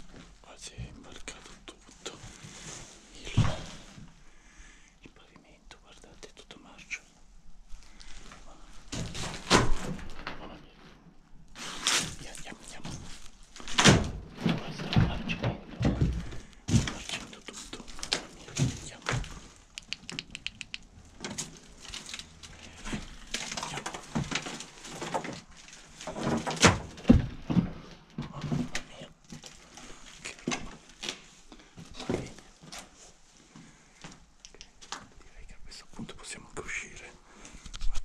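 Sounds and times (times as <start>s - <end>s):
knocks clicks and thuds: 13.8s - 20.5s.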